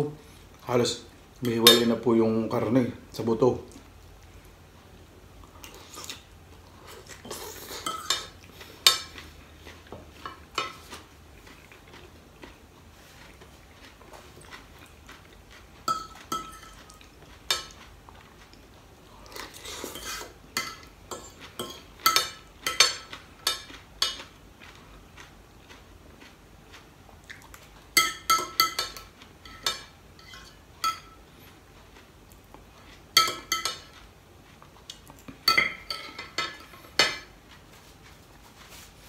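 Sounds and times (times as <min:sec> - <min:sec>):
cutlery scraping a plate: 0:06.8 - 0:09.4, 0:10.1 - 0:11.6, 0:15.8 - 0:17.9, 0:19.3 - 0:24.4, 0:28.0 - 0:31.2, 0:33.0 - 0:34.1, 0:35.4 - 0:37.6
cutlery clinking on a plate: 0:07.2 - 0:09.2, 0:15.9 - 0:17.8, 0:19.4 - 0:24.4, 0:28.0 - 0:31.2, 0:33.2 - 0:34.0, 0:35.4 - 0:37.3.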